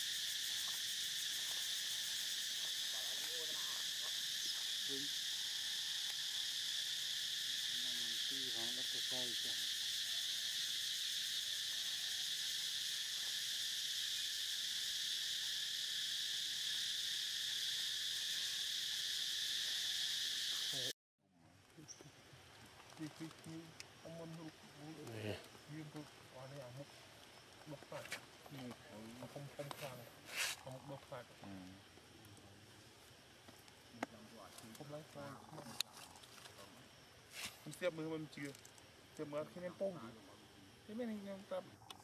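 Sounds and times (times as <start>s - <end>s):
insects droning: 0.0s - 42.0s.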